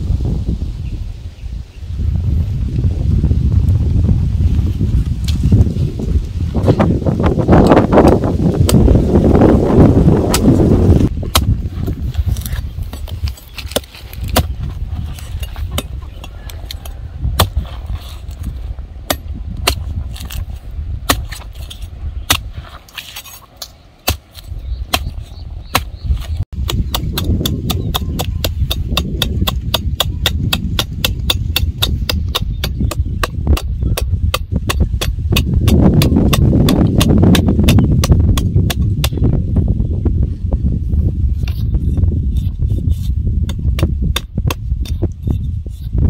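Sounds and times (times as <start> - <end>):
machete chopping coconut husk: 8.0 - 9.0, 10.1 - 11.6, 12.3 - 39.3.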